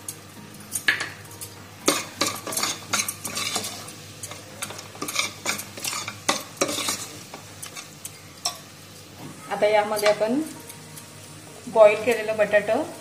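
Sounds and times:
spoon scraping metal pot: 0:01.9 - 0:03.9, 0:04.7 - 0:07.9.

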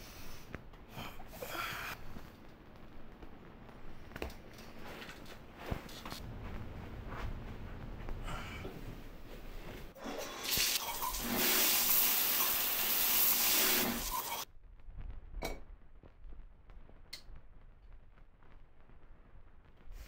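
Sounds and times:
shower water spray hissing: 0:10.0 - 0:14.5.

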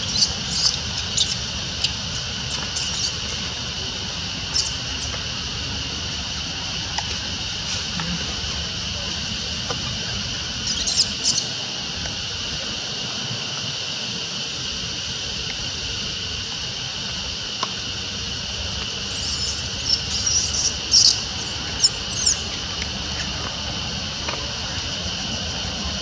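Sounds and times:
short high squeaks: 0:00.0 - 0:03.3, 0:19.2 - 0:22.4
shrill insect drone: 0:00.0 - 0:26.0.

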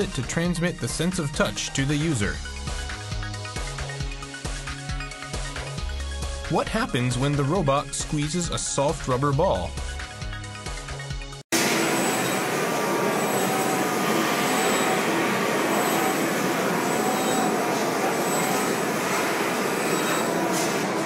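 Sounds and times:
orbital sander running: 0:11.6 - 0:21.0.

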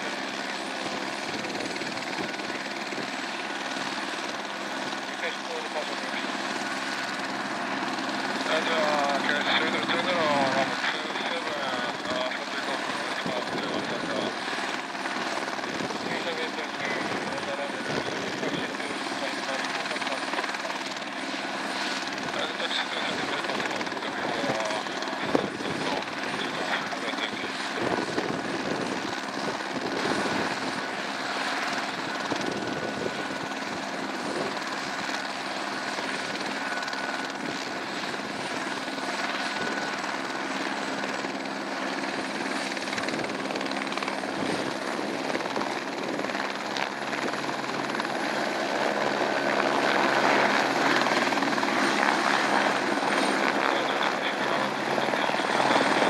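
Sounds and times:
helicopter rotor noise: 0:00.0 - 0:56.0
helicopter turbine whine: 0:00.0 - 0:56.0.

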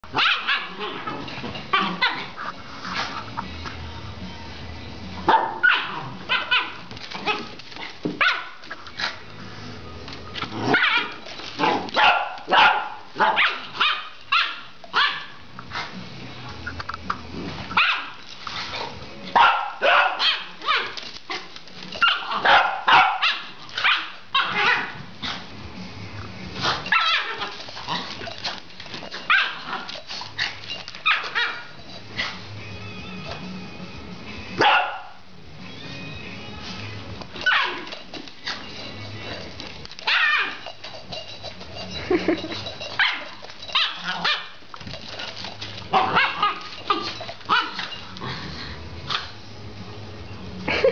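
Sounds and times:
small dogs barking: 0:00.1 - 0:02.4, 0:05.3 - 0:07.5, 0:08.2 - 0:08.6, 0:10.6 - 0:15.4, 0:17.7 - 0:18.2, 0:19.4 - 0:25.0, 0:26.9 - 0:28.0, 0:29.2 - 0:29.9, 0:31.0 - 0:31.8, 0:34.6 - 0:35.2, 0:37.4 - 0:38.0, 0:40.0 - 0:40.7, 0:43.0 - 0:44.6, 0:45.9 - 0:48.0.

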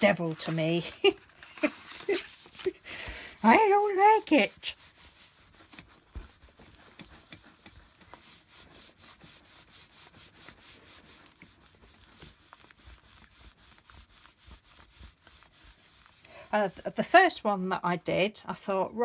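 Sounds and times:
hands rubbing paper: 0:00.0 - 0:17.4.

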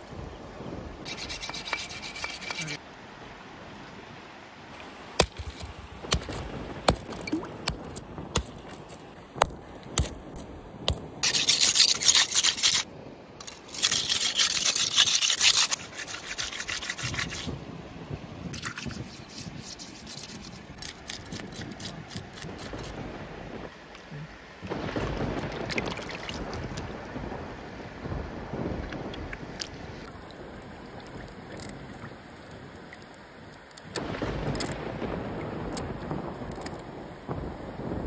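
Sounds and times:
knife scraping against rock: 0:01.1 - 0:02.8, 0:11.2 - 0:12.8, 0:13.4 - 0:17.5, 0:18.6 - 0:22.9
knife scraping fish scales: 0:01.1 - 0:02.8, 0:11.2 - 0:12.8, 0:13.4 - 0:17.5, 0:18.6 - 0:22.9.

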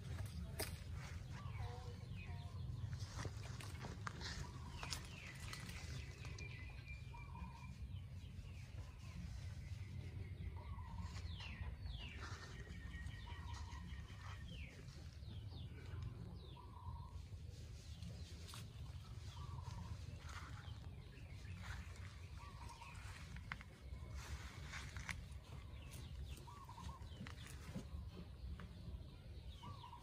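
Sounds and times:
birds chirping and trilling: 0:00.0 - 0:30.0.

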